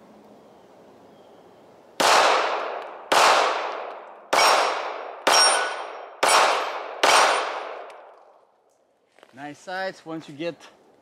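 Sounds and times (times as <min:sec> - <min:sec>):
pistol shots: 0:02.0 - 0:08.0.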